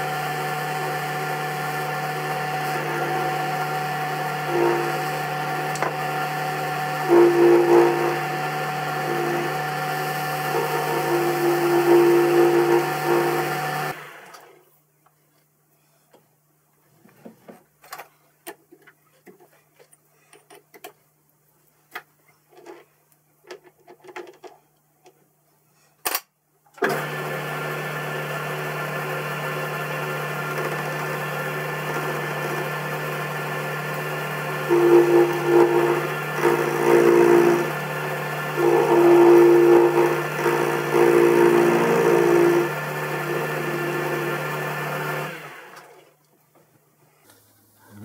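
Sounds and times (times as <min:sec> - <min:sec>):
lathe running: 0:00.0 - 0:14.3, 0:26.8 - 0:45.9
lathe spinning down: 0:00.0 - 0:14.3, 0:26.8 - 0:45.9.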